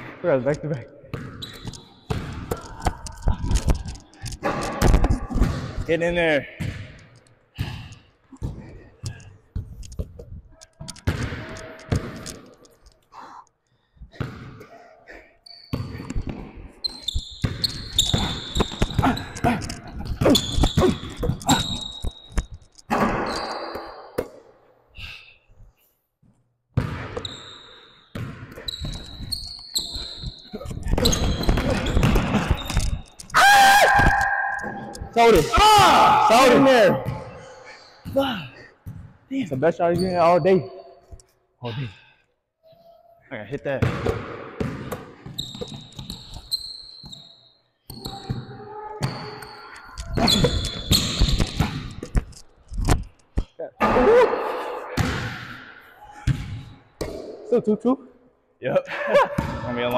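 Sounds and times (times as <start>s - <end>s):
basketball bouncing: 1.1s - 12.5s, 15.7s - 24.4s, 26.7s - 27.4s, 28.1s - 33.3s, 43.7s - 47.2s, 47.9s - 52.3s, 54.9s - 55.5s, 56.2s - 57.4s
high-pitched shoe squeaks: 1.3s - 3.1s, 15.4s - 16.1s, 16.8s - 19.5s, 20.2s - 24.2s, 27.2s - 33.4s, 45.3s - 51.7s.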